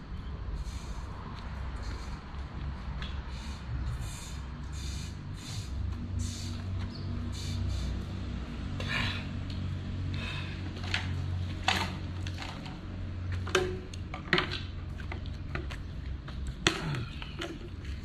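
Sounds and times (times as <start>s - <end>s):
plastic bottle set on concrete: 10.8s - 15.8s.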